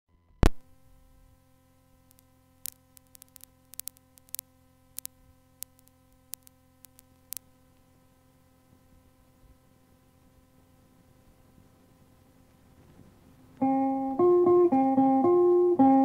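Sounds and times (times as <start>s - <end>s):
tape hum and hiss: 0.1s - 16.0s
sharp clicks and ticks: 2.1s - 7.8s.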